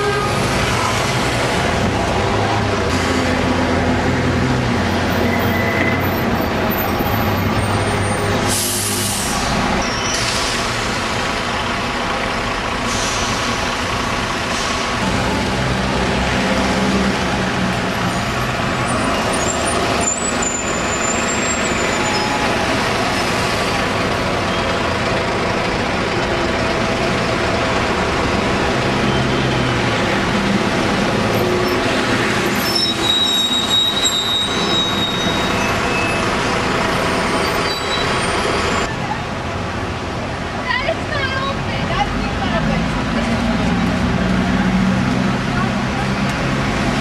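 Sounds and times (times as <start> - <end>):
bus diesel engines in traffic: 0.0 - 47.0
high brake squeal: 5.1 - 10.8, 18.8 - 23.5, 31.3 - 38.9.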